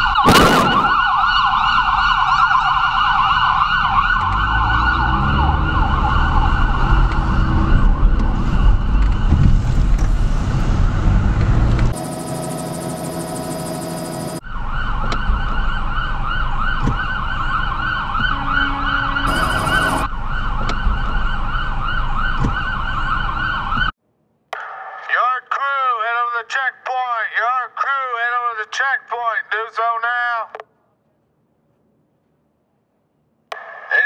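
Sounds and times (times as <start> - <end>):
police siren warbling: 0.0 - 9.5, 11.9 - 23.9
different steady siren tone: 0.0 - 11.0, 11.8 - 24.0.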